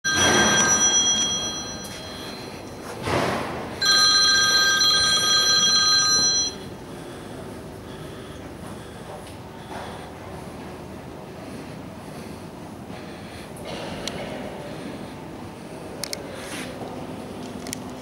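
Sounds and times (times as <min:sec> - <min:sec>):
electric bell ringing: 0:00.1 - 0:03.0, 0:03.8 - 0:06.7.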